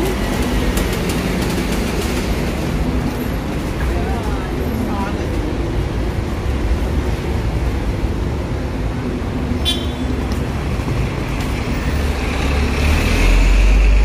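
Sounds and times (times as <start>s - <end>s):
street traffic hum: 0.0s - 14.0s
heavy vehicle rumbling past: 10.5s - 14.0s.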